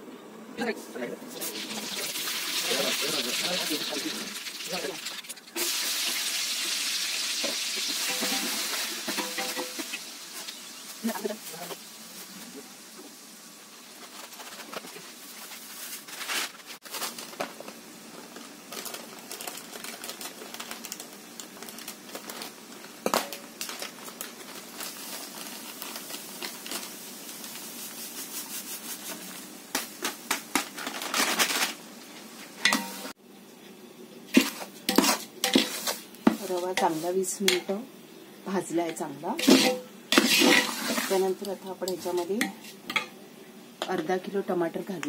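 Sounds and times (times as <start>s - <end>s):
metal ladle scraping a pot: 34.4s - 36.0s, 39.4s - 41.2s.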